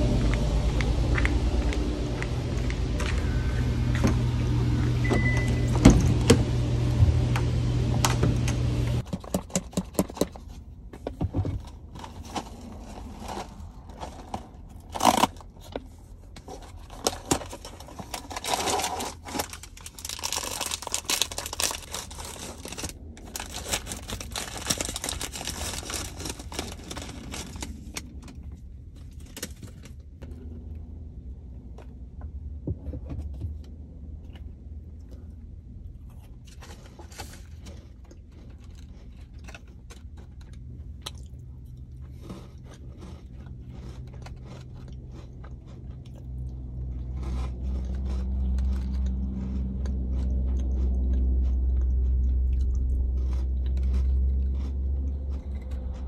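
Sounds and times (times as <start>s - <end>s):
steady low rumble: 0.0s - 9.1s, 11.6s - 56.0s
plastic wrapping crinkling: 16.5s - 28.3s.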